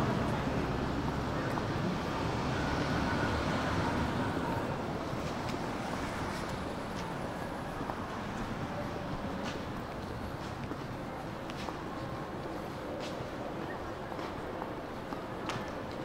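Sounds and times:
road traffic: 0.0s - 16.0s.

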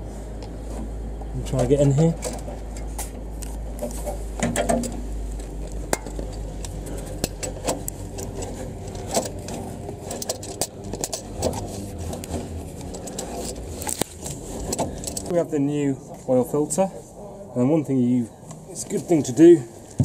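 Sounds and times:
metallic clinks and knocks: 5.9s - 15.3s.

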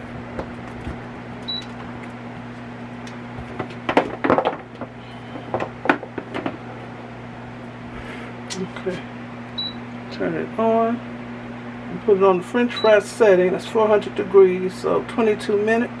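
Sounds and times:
steady low hum: 0.0s - 16.0s
air fryer beep: 1.4s - 1.8s, 9.5s - 10.0s, 12.2s - 13.1s
knocks on kitchen countertop: 3.6s - 4.6s, 5.5s - 6.6s.

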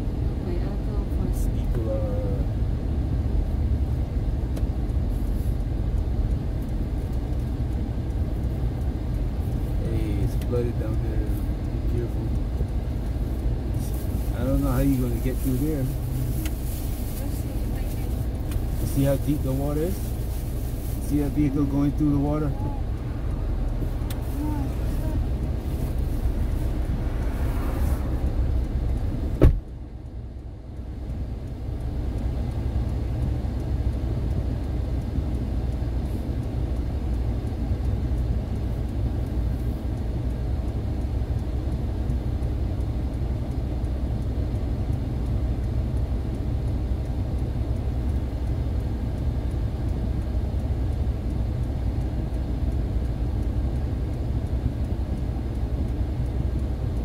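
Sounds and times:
car engine and road noise: 0.0s - 57.0s.

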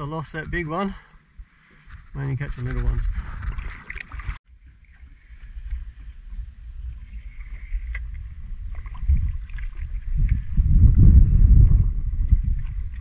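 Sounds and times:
wind on microphone: 1.3s - 13.0s
water slapping against boat: 7.0s - 10.5s.

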